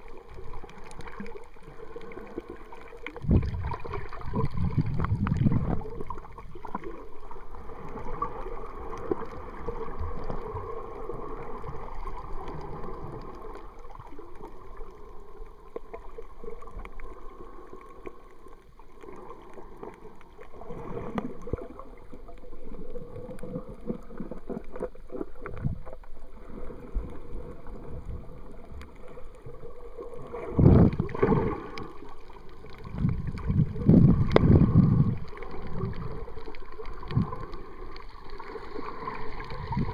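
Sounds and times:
muffled underwater sloshing: 0.0s - 39.9s.

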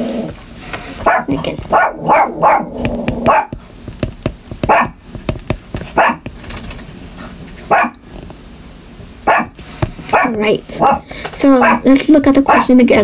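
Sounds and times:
dog barking: 1.0s - 3.6s, 4.7s - 5.0s, 5.9s - 6.3s, 7.7s - 8.0s, 9.3s - 11.9s
stylus tapping on a tablet screen: 2.8s - 6.4s.

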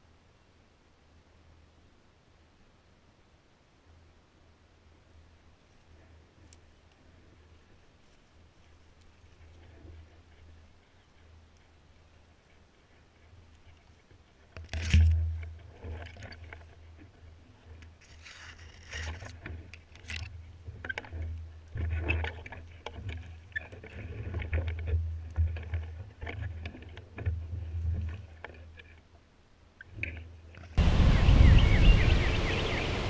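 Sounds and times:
leaves and stems brushing: 7.4s - 20.2s
footsteps in undergrowth: 18.0s - 19.4s.

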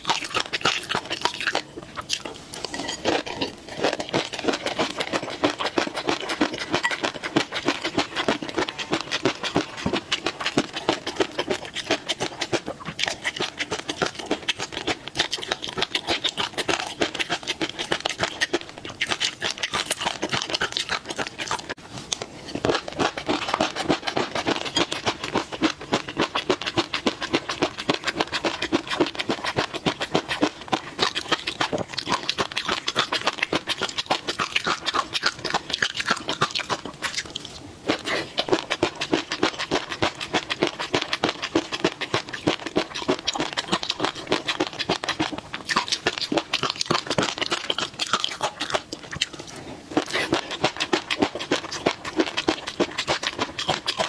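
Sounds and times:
wet chewing and lip-smacking: 0.0s - 54.0s
spoon scraping glass bowl: 2.5s - 5.4s, 6.3s - 7.9s.

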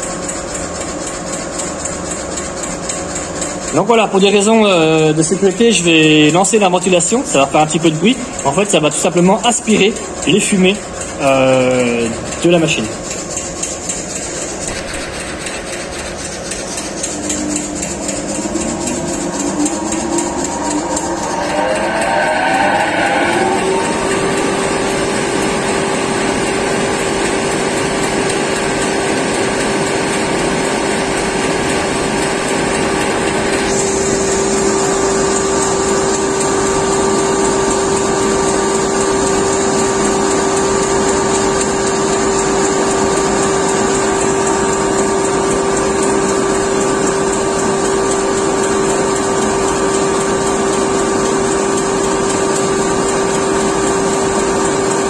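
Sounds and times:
thin high whine: 16.8s - 27.8s.

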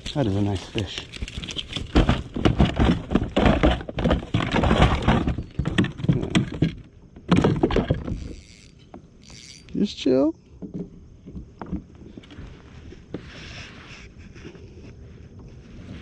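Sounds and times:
fish thrashing on plastic deck: 0.0s - 8.1s.

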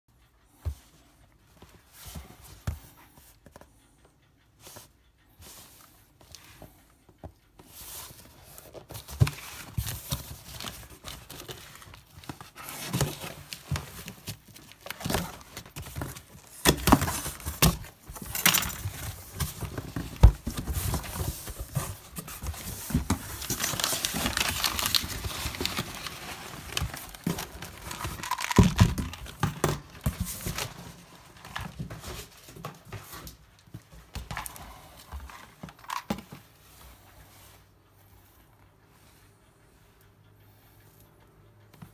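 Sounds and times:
cardboard tearing and rustling: 8.9s - 32.3s.

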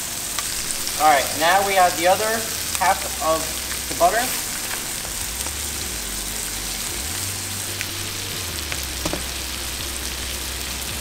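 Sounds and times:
fish frying in butter: 0.0s - 11.0s.

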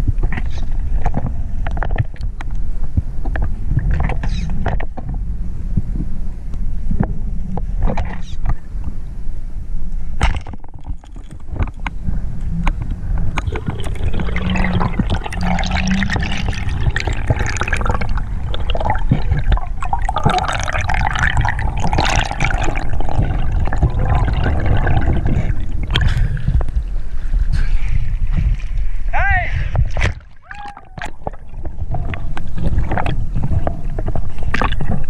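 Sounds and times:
water rushing and gurgling: 10.2s - 29.1s, 29.7s - 35.0s.

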